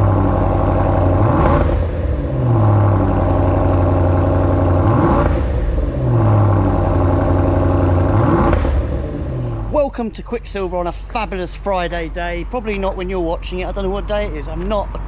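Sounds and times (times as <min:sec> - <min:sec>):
car engine idling and revving: 0:00.0 - 0:15.0.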